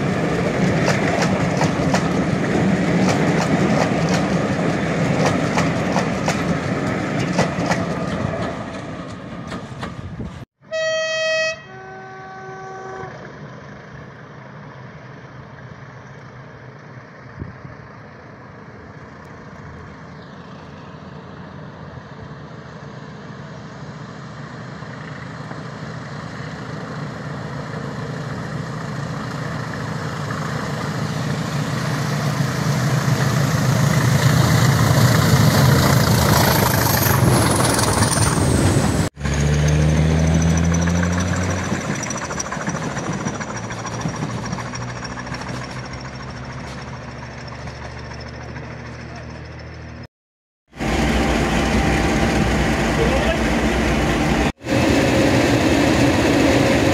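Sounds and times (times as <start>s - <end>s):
diesel locomotive engine under load: 0.0s - 50.1s, 50.7s - 56.9s
locomotive two-tone horn: 10.6s - 13.3s, 50.8s - 54.5s.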